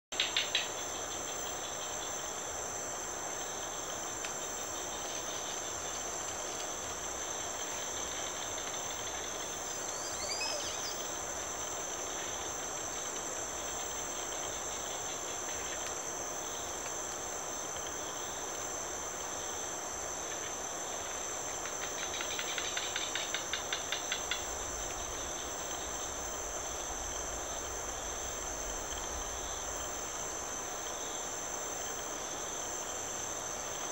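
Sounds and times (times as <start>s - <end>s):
insects trilling: 0.2s - 33.9s
soft hiss: 0.2s - 33.9s
rapid pulsing call: 9.7s - 11.1s
gliding whistle: 10.0s - 11.0s.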